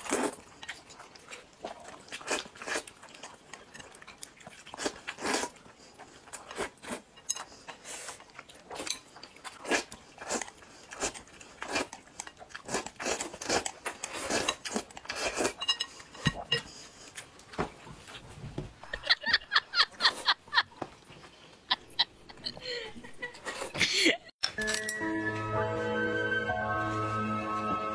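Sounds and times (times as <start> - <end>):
chewing: 0.0 - 18.2, 20.0 - 22.6.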